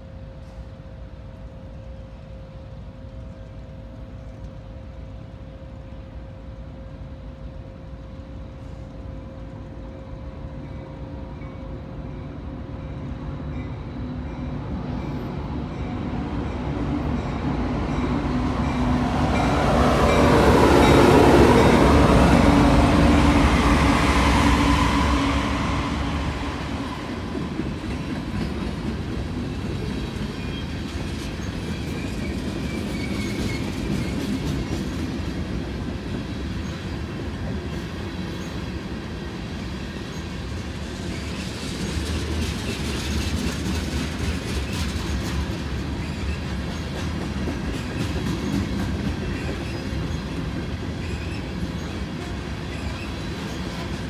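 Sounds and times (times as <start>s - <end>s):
diesel locomotives passing: 0.0s - 54.0s
freight cars rolling on rails: 14.4s - 54.0s.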